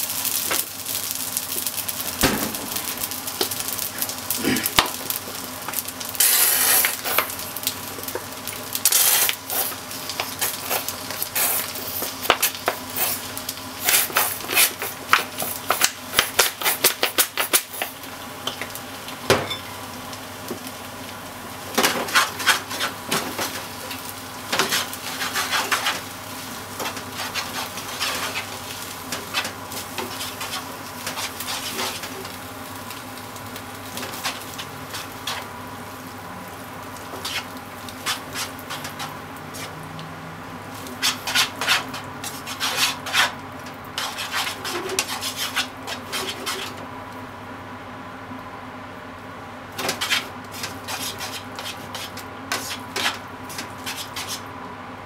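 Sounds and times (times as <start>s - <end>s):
food sizzling in a frying pan: 0.0s - 54.6s
tongs scraping a pan: 24.6s - 26.0s, 26.8s - 32.1s, 37.2s - 39.7s, 40.9s - 43.4s, 44.0s - 46.8s, 49.8s - 54.4s.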